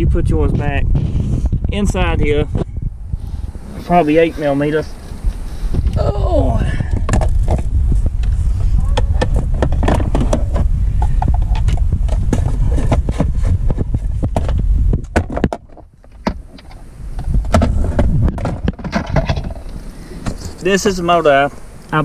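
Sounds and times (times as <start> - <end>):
low rumble: 0.0 - 15.2.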